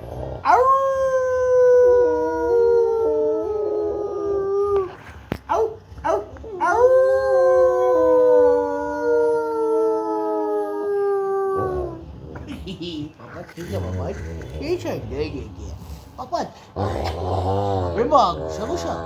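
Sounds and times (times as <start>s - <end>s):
dog howling: 0.2s - 12.1s
dog breathing: 13.3s - 16.9s.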